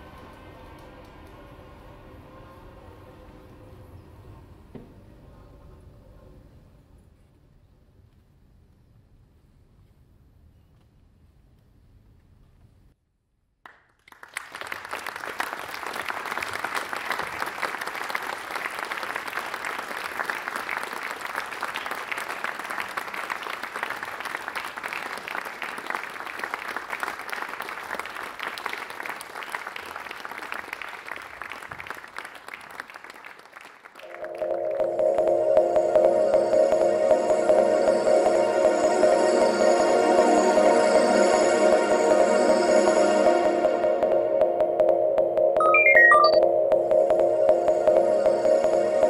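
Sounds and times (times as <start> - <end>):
audience applauding: 14.0 - 34.9
ambient electronic music: 34.0 - 49.0.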